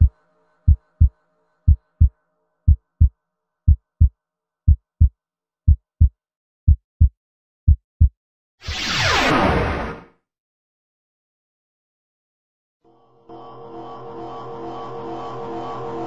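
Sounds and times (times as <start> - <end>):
heartbeat thuds: 2.7 - 3.1, 3.7 - 4.1, 4.7 - 5.1, 5.7 - 6.1, 6.7 - 8.1.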